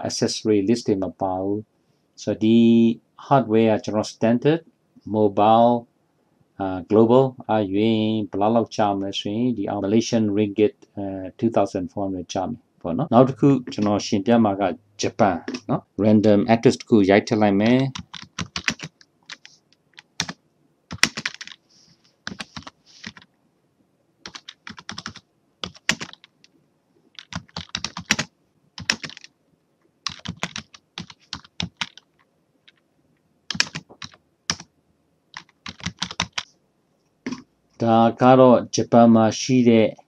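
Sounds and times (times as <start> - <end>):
typing on computer keyboard: 17.9 - 21.6, 22.2 - 23.3, 24.2 - 26.5, 27.1 - 29.3, 30.0 - 32.8, 33.5 - 34.7, 35.3 - 36.5.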